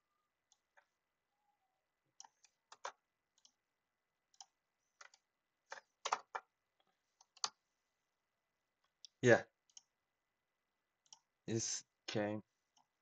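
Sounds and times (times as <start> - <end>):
computer mouse and keyboard clicks: 2.2 - 3.6, 4.4 - 7.6.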